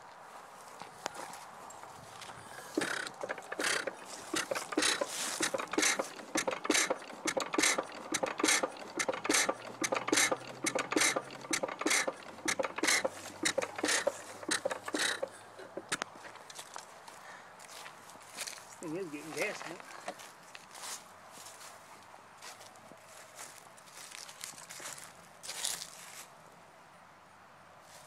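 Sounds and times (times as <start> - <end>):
engine exhaust pops: 2.7 - 16.1.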